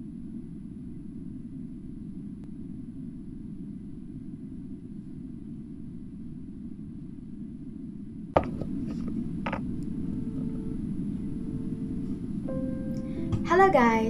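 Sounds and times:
low background noise: 0:00.0 - 0:14.0
phone handling knock: 0:08.4 - 0:08.7.

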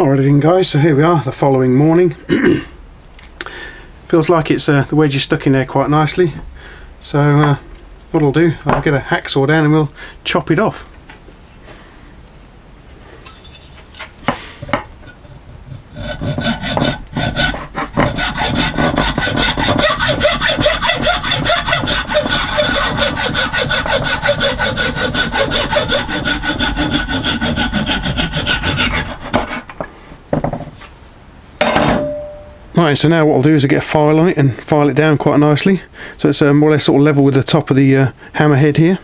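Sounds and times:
hacksaw cutting wood: 0:15.9 - 0:29.8
saw knocking on wood: 0:16.0 - 0:30.7.

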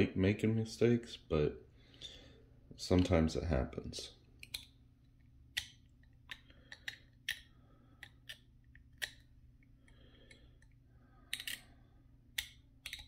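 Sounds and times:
plastic parts clicking: 0:05.5 - 0:09.3, 0:10.3 - 0:11.7, 0:12.3 - 0:13.0.

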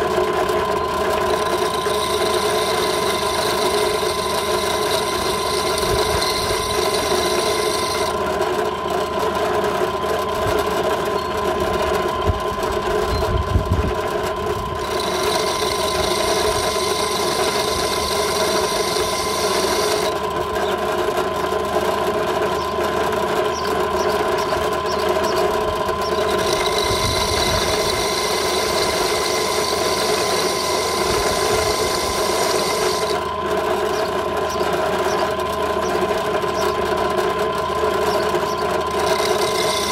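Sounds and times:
drill bit grinding glass: 0:00.0 - 0:08.4, 0:14.8 - 0:20.8, 0:23.6 - 0:33.2, 0:37.9 - 0:39.9
drill press motor whine: 0:00.0 - 0:39.9.

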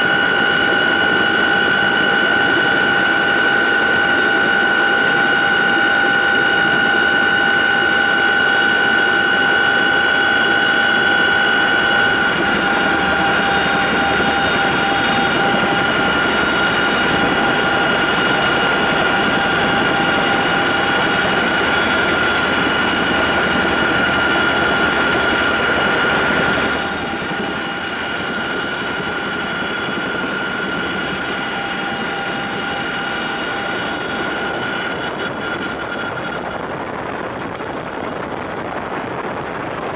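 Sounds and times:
helicopter cabin noise: 0:00.0 - 0:39.9.

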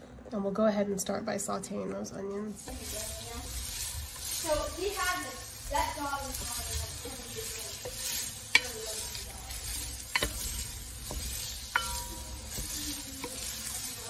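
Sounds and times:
onions sizzling in a pot: 0:02.0 - 0:14.0
wooden spatula scraping a pot: 0:02.5 - 0:14.0
spatula knocking against pot: 0:10.1 - 0:13.6.

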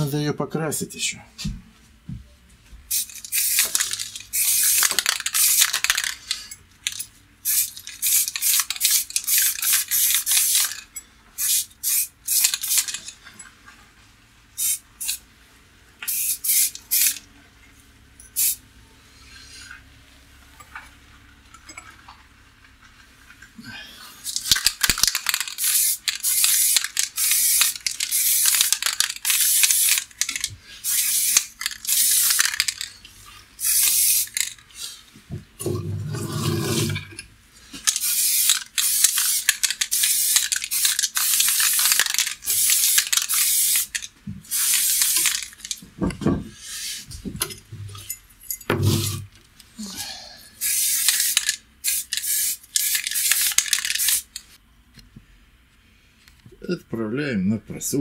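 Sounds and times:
spray paint can hissing: 0:02.9 - 0:10.8, 0:11.4 - 0:13.0, 0:14.6 - 0:15.2, 0:16.1 - 0:17.2, 0:18.4 - 0:18.6, 0:24.2 - 0:32.9, 0:33.6 - 0:34.6, 0:37.9 - 0:45.8, 0:48.8 - 0:49.2, 0:50.6 - 0:54.4.

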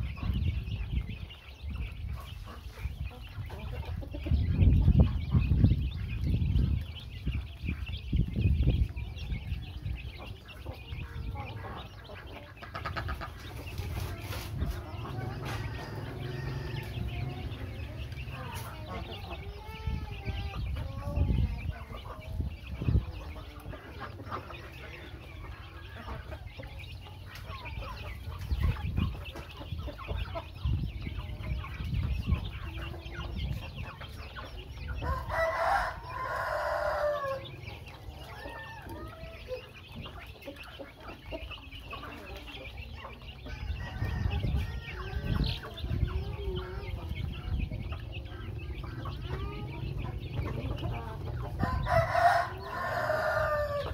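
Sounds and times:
chicks peeping and clucking: 0:00.0 - 0:53.9
chicken crowing: 0:15.3 - 0:17.4, 0:35.0 - 0:37.6, 0:43.5 - 0:45.4, 0:51.6 - 0:53.9.

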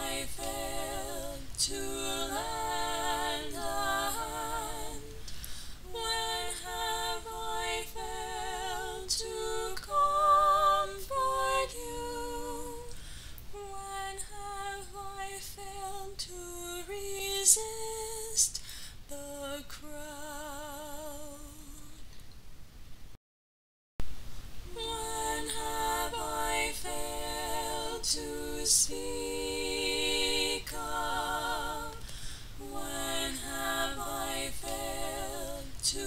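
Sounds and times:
woman singing slow melody: 0:00.0 - 0:22.2.

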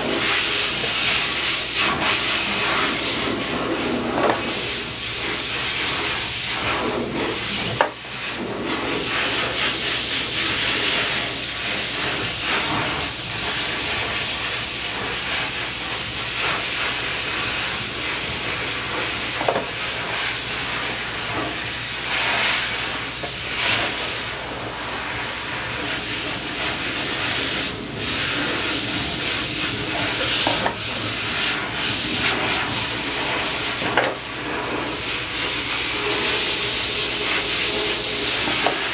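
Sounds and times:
rushing hiss: 0:25.9 - 0:38.9.

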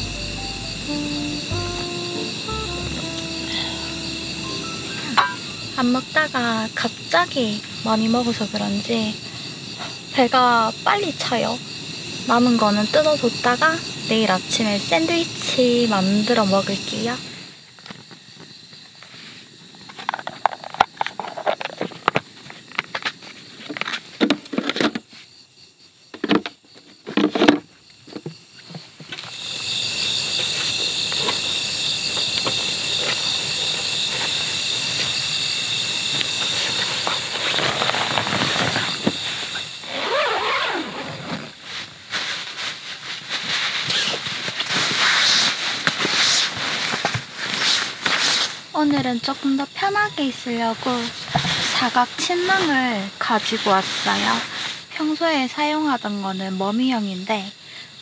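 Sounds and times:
night insects chorus: 0:00.0 - 0:58.0
sleeping bag fabric rustling: 0:36.3 - 0:48.6.

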